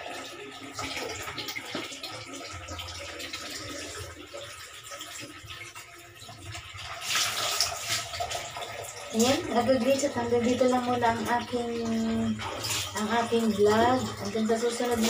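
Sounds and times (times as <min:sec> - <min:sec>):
water sloshing in a plastic basin: 0:00.0 - 0:15.0.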